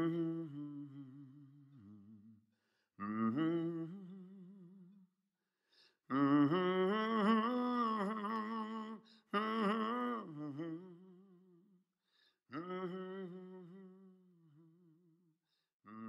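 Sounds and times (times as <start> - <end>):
man humming a melody: 0.0 - 2.2, 12.5 - 14.7.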